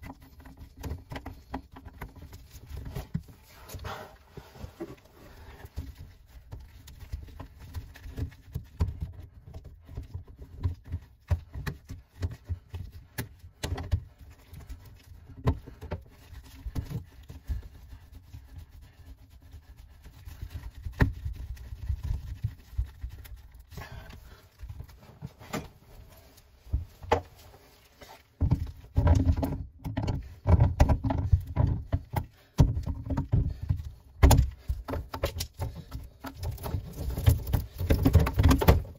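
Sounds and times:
hands handling plastic fittings: 19.8 - 38.9.

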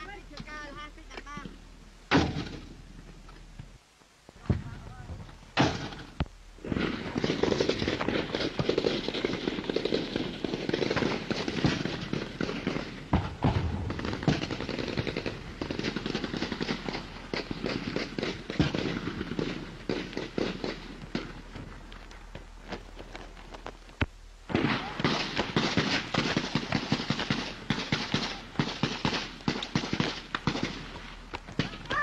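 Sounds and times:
loud gun bangs: 2.1 - 2.7
small-arms gunfire crackle: 2.1 - 2.8, 5.6 - 32.0.

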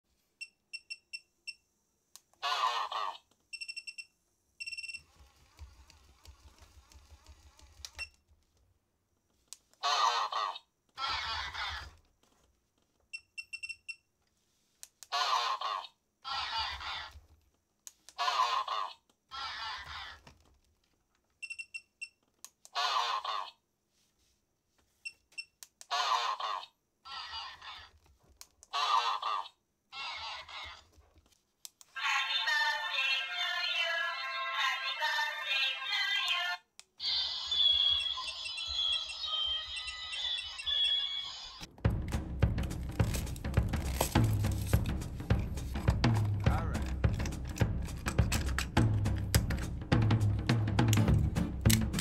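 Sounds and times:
toy voice-like bursts: 18.2 - 20.2, 32.0 - 41.6.

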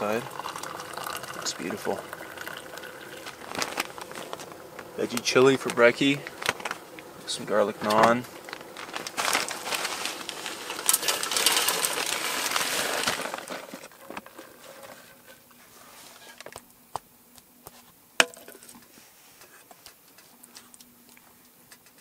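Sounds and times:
crackling hissing rustle: 0.0 - 16.8.

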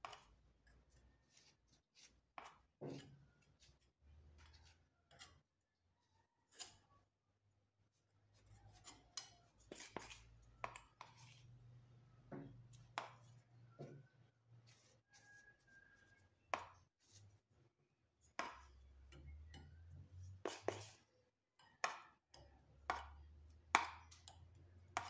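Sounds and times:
spatula scraping on steel bench: 0.0 - 5.4, 6.5 - 6.9, 8.4 - 11.7, 19.1 - 21.1.

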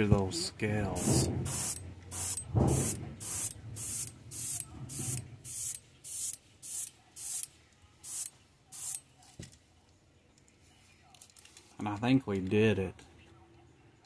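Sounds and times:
airbrush spraying bursts: 1.0 - 9.0.

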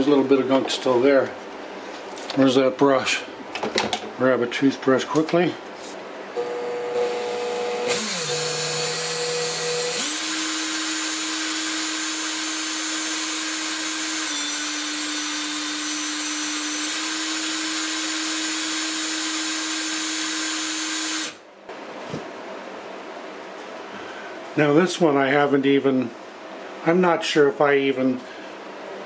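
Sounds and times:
drill motor whine with hiss: 6.4 - 21.4.

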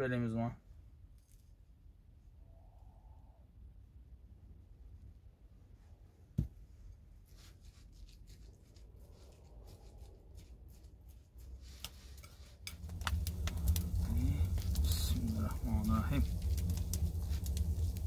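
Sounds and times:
hands kneading wet mixture: 7.1 - 18.0
wood fire rumbling and crackling: 7.7 - 18.0.

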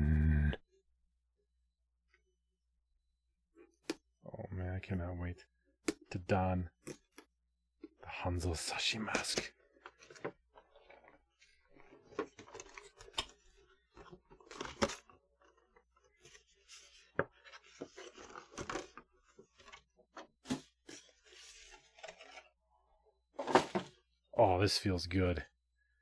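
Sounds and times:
cardboard sliding and rustling: 16.1 - 22.6.

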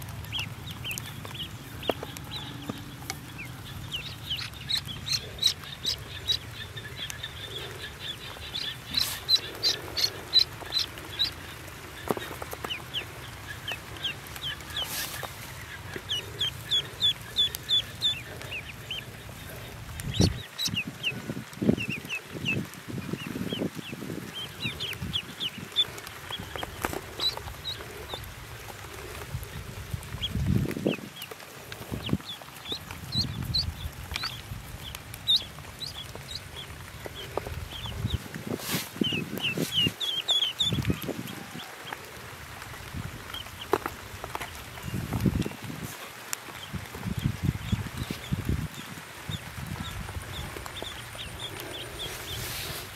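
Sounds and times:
ducklings peeping: 0.0 - 52.9
rustling in straw: 0.0 - 52.9.

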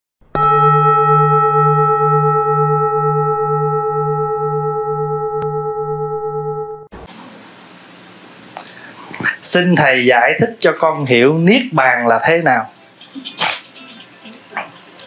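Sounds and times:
bowl bell ringing: 0.3 - 6.9.

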